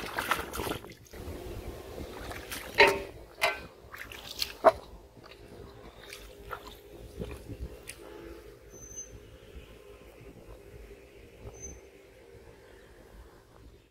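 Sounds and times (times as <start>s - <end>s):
wooden reel knocking metal bowl: 2.8s - 3.7s.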